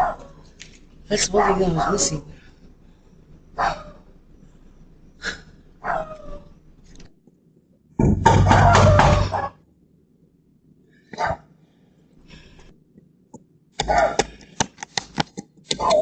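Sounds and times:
sharp clicks and taps: 13.3 - 16.0.

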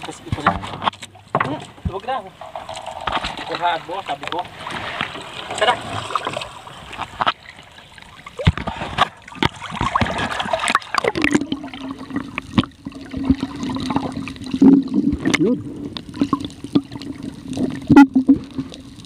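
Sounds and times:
water splashing and gurgling: 0.0 - 19.0
low underwater hum: 4.2 - 19.0.

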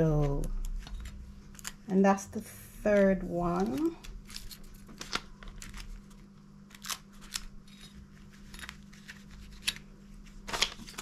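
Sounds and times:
faint steady hum: 0.0 - 11.0
tape peeling crackles: 3.6 - 7.6.

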